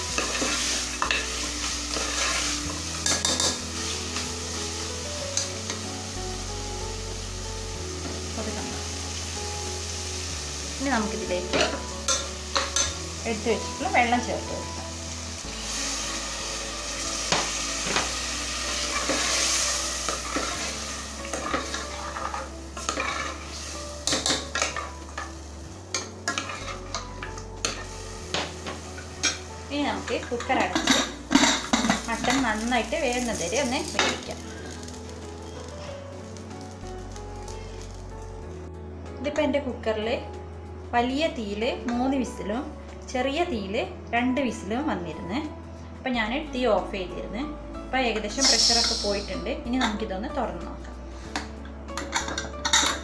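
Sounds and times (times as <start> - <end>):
curry sizzling in a pot: 0.0 - 38.7, 48.0 - 53.0
spoon scraping a pot: 21.3 - 23.5, 26.0 - 27.8.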